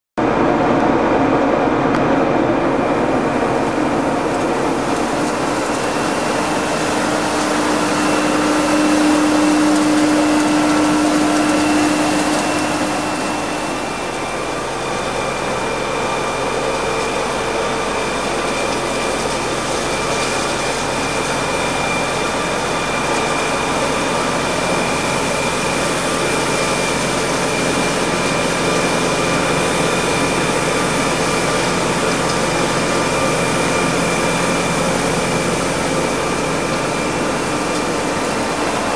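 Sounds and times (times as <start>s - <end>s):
road sweeper engine and suction fan: 0.2s - 38.9s
brooms brushing grit: 3.8s - 14.9s.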